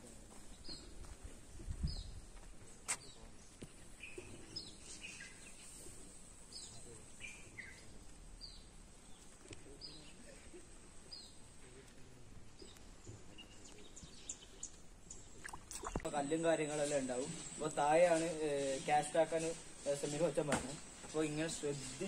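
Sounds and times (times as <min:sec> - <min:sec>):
lower bird chirps: 0:03.0 - 0:11.6, 0:12.5 - 0:20.0.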